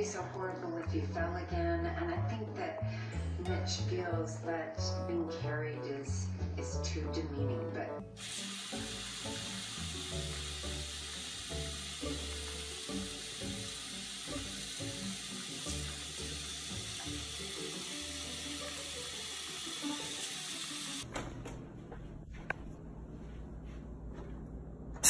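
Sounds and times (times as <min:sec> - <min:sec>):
background music with low notes: 0:00.0 - 0:25.0
tap water running into a sink: 0:08.1 - 0:21.1.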